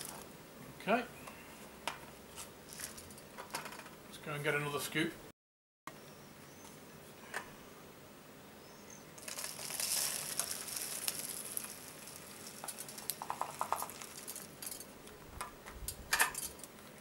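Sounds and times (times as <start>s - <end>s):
seeds poured into plastic tube: 9.2s - 14.7s.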